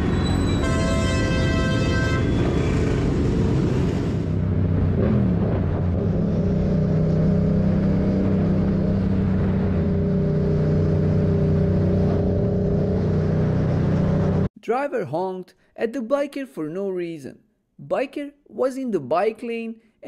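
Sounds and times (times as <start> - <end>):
road and wind noise: 0.0 - 14.5.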